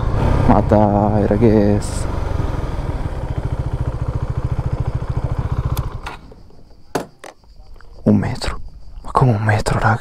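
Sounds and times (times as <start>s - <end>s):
motorcycle engine running: 0.0s - 6.8s
sharp clicks: 5.7s - 6.3s.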